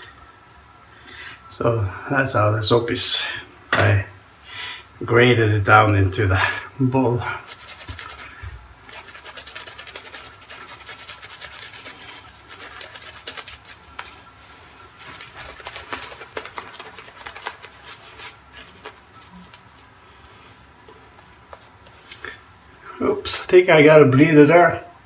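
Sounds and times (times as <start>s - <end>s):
shaving brush scratching: 7.2s - 19.8s.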